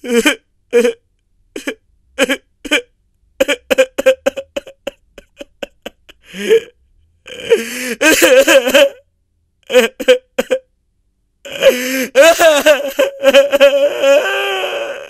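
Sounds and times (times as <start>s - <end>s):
man's strained wail: 7.3s - 9.0s, 11.5s - 15.0s
man crying out: 11.5s - 15.0s.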